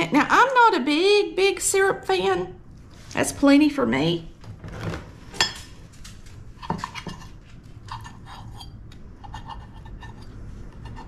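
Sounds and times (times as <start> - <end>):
fork and knife scraping a plate: 6.6 - 11.0.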